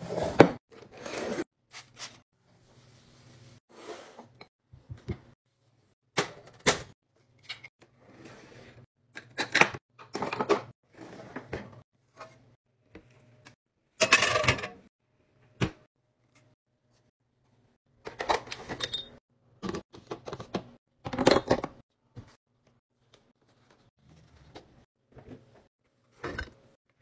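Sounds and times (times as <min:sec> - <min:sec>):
cutlery clinking and clattering: 0:14.0 - 0:14.8.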